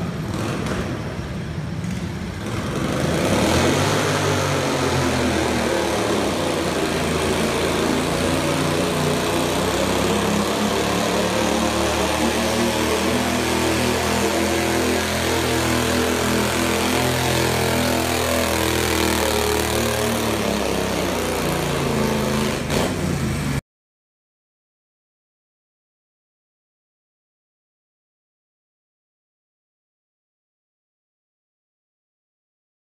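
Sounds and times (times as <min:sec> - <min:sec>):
garden tractor engine under load: 0:00.0 - 0:23.6.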